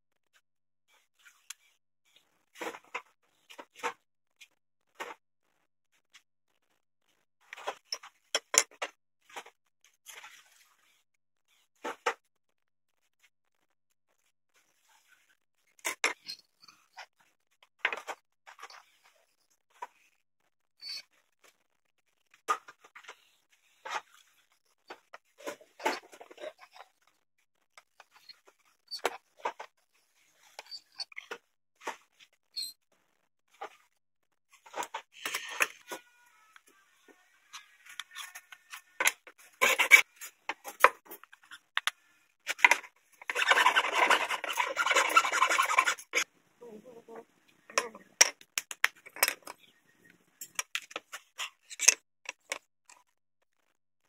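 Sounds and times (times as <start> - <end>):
wooden parts clicking and tapping: 38.7 - 46.2, 47.7 - 49.7, 50.4 - 52.7
wooden pieces clicking and tapping: 47.7 - 49.6.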